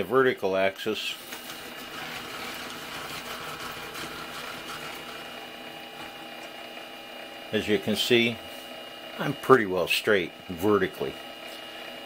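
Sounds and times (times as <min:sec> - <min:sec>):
lathe carriage mechanical rattle: 0:01.2 - 0:06.6.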